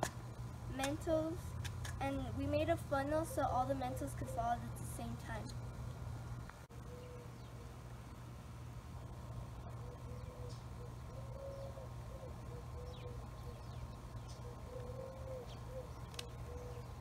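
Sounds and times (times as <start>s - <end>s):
steady low hum: 0.0s - 17.0s
small birds chirping: 1.9s - 6.0s, 9.0s - 17.0s
dove cooing: 2.0s - 5.4s, 6.8s - 7.7s, 9.6s - 17.0s.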